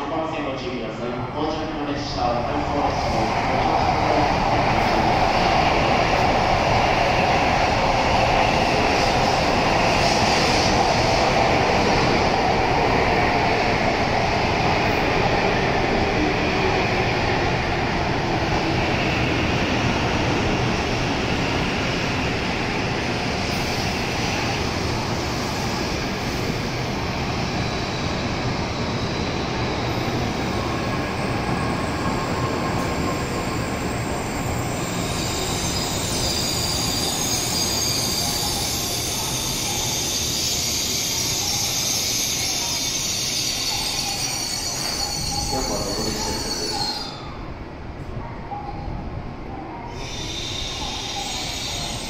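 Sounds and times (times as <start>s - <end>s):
high wheel squeal: 33.2s - 47.4s, 49.9s - 52.0s.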